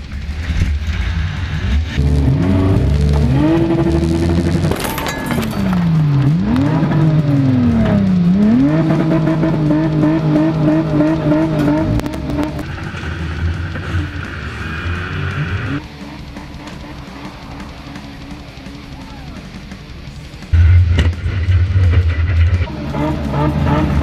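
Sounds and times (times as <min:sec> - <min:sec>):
car engine revving: 0:00.0 - 0:24.0
clattering crash: 0:03.0 - 0:09.2.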